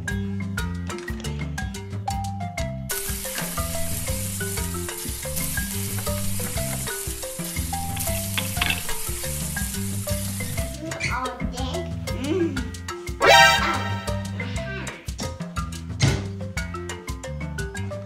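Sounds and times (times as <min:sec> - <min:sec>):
marimba background music: 0:00.0 - 0:18.0
frying sizzle: 0:02.9 - 0:10.8.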